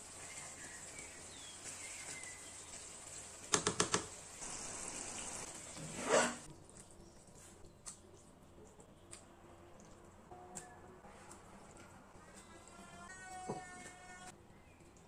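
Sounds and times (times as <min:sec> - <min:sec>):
meat sauce sizzling in a pan: 0:00.0 - 0:05.7.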